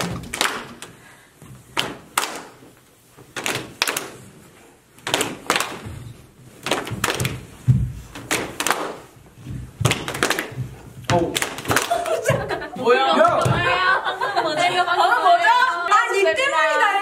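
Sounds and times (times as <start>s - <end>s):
people clapping hands: 0.0s - 1.0s, 1.7s - 2.6s, 3.3s - 4.3s, 5.0s - 5.9s, 6.6s - 7.6s, 8.2s - 9.1s, 9.8s - 12.6s.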